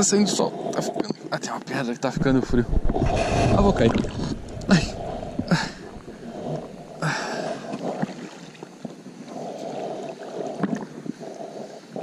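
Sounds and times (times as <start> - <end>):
water sloshing around wading legs: 2.7 - 11.1.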